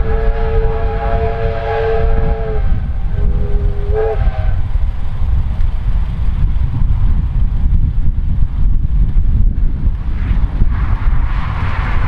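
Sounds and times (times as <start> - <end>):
steam locomotive whistle blasts: 0.0 - 4.6
constant low rumble: 0.0 - 12.0.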